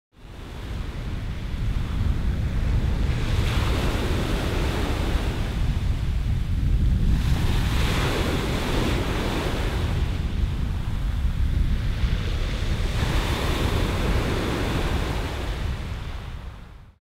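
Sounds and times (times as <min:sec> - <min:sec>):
wind rumble on microphone: 0:00.2 - 0:17.0
waves on pebble beach: 0:07.0 - 0:11.0, 0:11.8 - 0:16.2.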